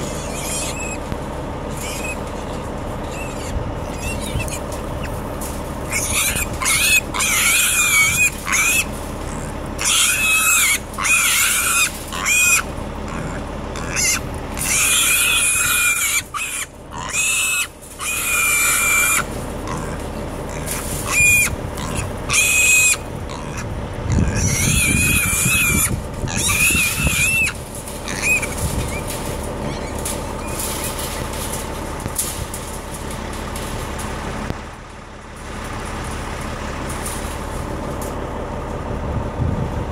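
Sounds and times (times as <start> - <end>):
pigs squealing: 0.0 - 2.4, 3.0 - 31.6
motor hum: 0.0 - 39.9.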